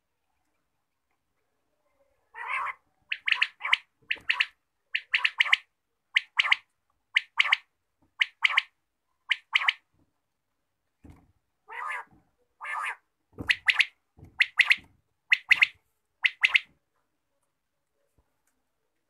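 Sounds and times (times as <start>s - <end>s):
quail calling: 2.3s - 6.6s, 11.7s - 16.7s.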